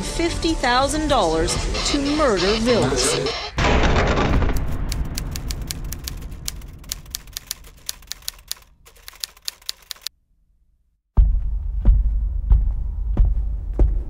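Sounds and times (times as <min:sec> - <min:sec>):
low rumble: 0:03.6 - 0:07.9
typewriter keys striking: 0:04.5 - 0:10.1.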